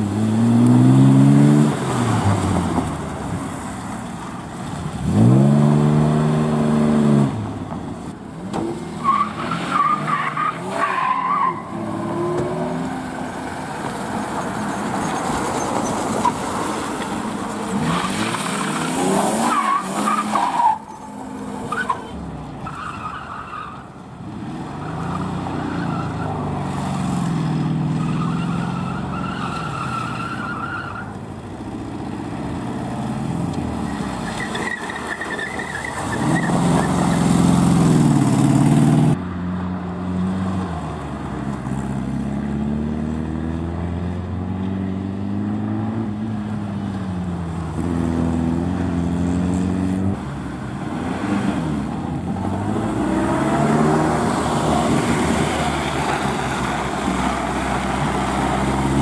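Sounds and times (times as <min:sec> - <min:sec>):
tyre squeals: 0:33.9 - 0:37.2
car engine revving: 0:47.8 - 0:59.0.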